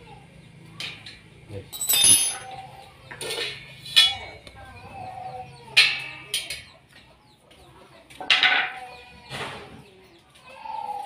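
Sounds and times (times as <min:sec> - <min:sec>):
chickens clucking and squawking: 0:00.0 - 0:11.0
metal frame clinks: 0:01.7 - 0:02.6.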